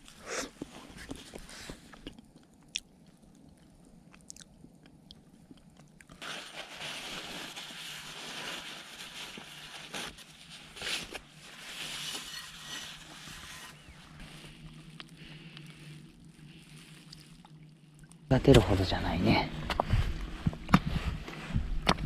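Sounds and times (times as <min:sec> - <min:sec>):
kitchen paper rubbing and crinkling: 0:06.2 - 0:14.9.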